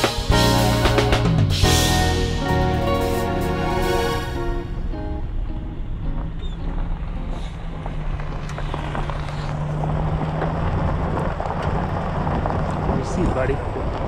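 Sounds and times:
vehicle engine hum: 0.0 - 14.0
tyres crunching on gravel: 6.1 - 14.0.

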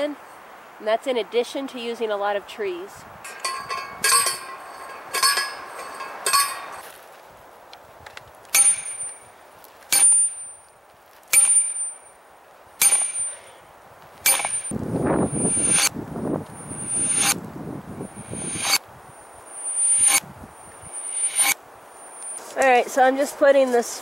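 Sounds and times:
post driver metal clangs: 3.2 - 6.8, 12.8 - 13.4, 14.2 - 14.7
ringing hammer strikes: 8.6 - 9.2, 9.9 - 10.5, 11.4 - 12.0, 12.8 - 13.4, 14.2 - 15.9, 16.6 - 17.4, 18.1 - 18.8, 19.6 - 20.2, 20.8 - 22.5.

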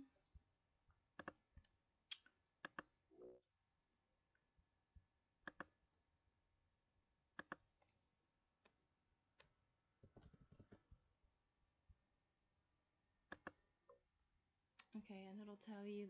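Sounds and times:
faint mouse clicks: 1.2 - 2.9, 5.4 - 5.7, 7.4 - 8.0, 13.3 - 14.0.

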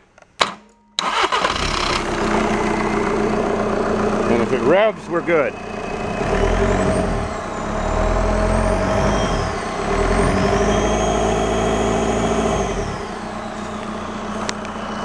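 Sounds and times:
diesel engine revving: 1.0 - 15.0
turbo whistle: 6.1 - 15.0.

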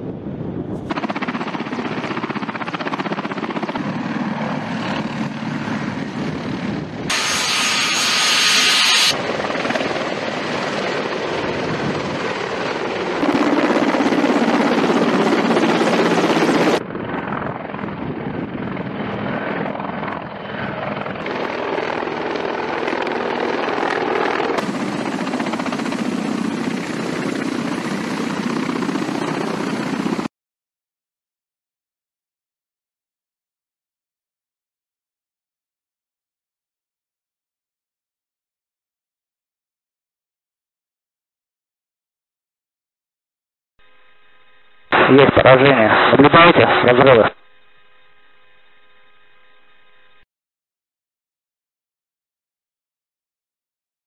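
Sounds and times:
helicopter rotor and turbine noise: 0.0 - 30.3, 43.8 - 50.3.

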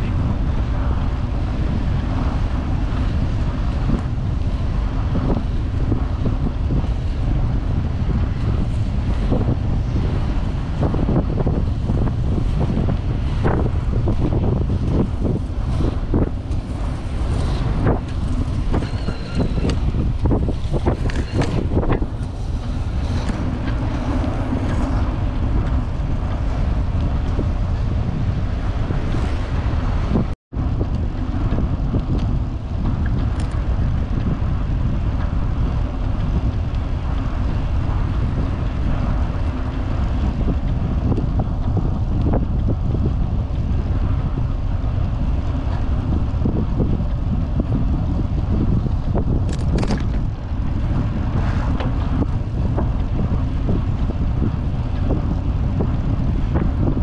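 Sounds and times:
wind buffeting microphone: 0.0 - 57.0
bicycle clicks and knocks: 49.0 - 50.3.

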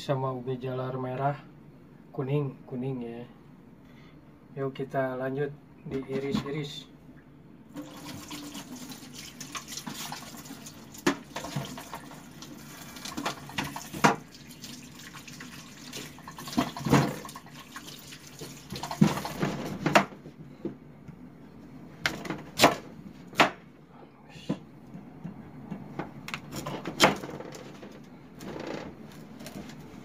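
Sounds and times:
tap water running into sink: 7.8 - 19.5.

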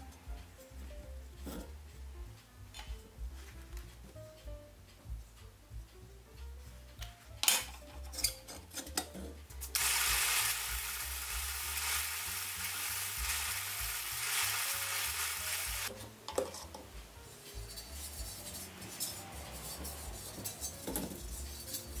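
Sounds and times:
metal parts clicking: 7.4 - 9.3.

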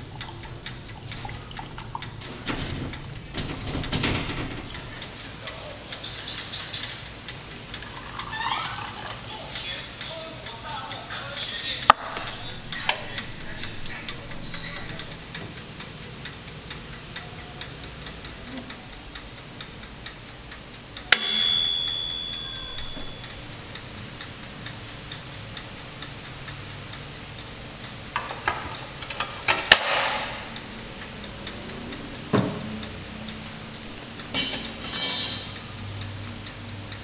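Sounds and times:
clockwork ticking: 0.0 - 37.0
bright ding: 21.1 - 23.2.

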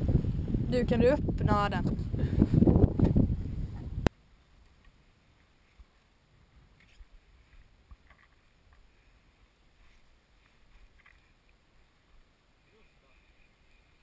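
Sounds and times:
faint rustling of reeds: 3.3 - 14.0.

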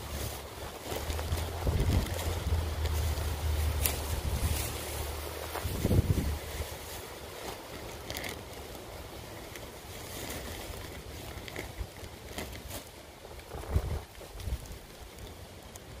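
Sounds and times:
wind noise: 0.0 - 7.6, 13.2 - 15.2
plastic bag crinkling: 0.0 - 16.0.

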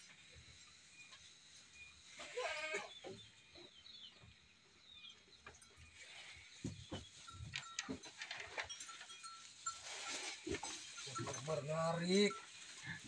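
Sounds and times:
goat bleating: 2.2 - 3.0.

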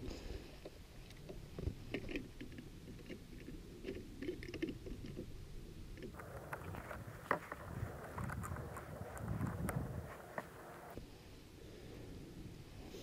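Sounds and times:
low wind rumble: 5.2 - 13.0
rustling: 6.0 - 11.0.

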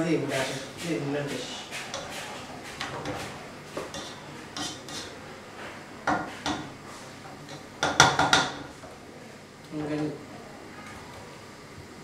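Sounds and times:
spatula scraping pot: 0.4 - 5.2
spatula knocking against pot: 7.5 - 8.7.

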